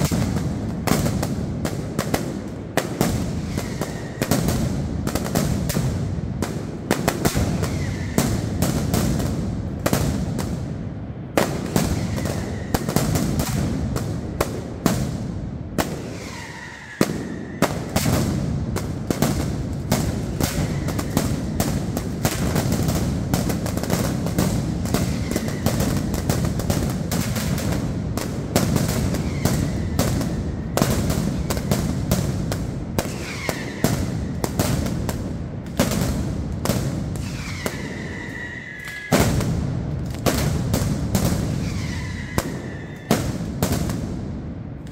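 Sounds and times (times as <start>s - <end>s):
firecracker bangs: 0.0s - 44.5s
firework whistles: 2.9s - 5.8s, 7.2s - 8.9s, 11.5s - 13.7s, 15.8s - 18.4s, 19.2s - 27.9s, 28.6s - 32.2s, 33.0s - 34.9s, 36.8s - 39.5s, 40.3s - 43.5s.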